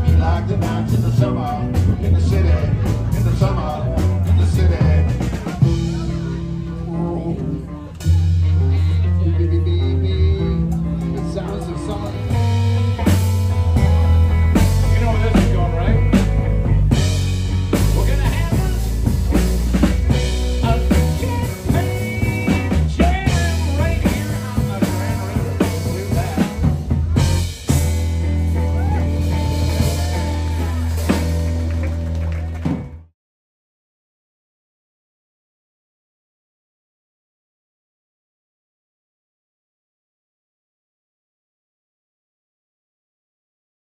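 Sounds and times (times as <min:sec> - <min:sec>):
drum kit beat: 0:00.0 - 0:06.8, 0:08.0 - 0:33.1
person singing: 0:00.0 - 0:12.4, 0:19.8 - 0:26.7
bass guitar: 0:00.0 - 0:33.1
electric guitar: 0:00.0 - 0:33.1.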